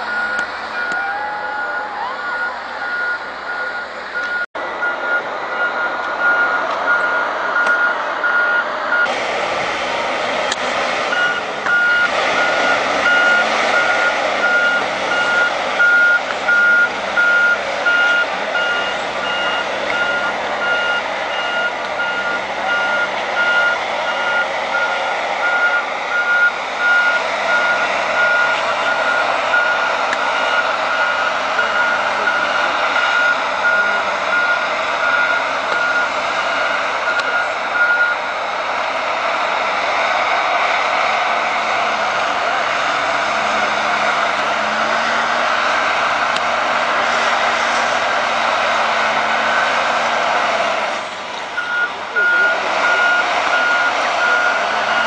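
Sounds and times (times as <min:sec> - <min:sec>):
reversing alarm beeping: 0:00.0 - 0:09.1, 0:11.1 - 0:38.3, 0:51.6 - 0:55.0
engine running: 0:00.0 - 0:55.0.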